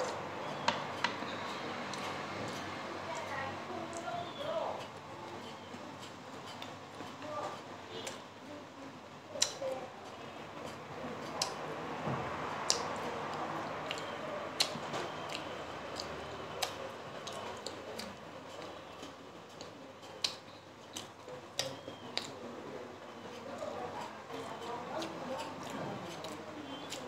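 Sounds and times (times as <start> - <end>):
chewing and wet mouth sounds: 9.3 - 27.0
sharp mouth clicks and smacks: 9.4 - 9.7, 12.6 - 22.4.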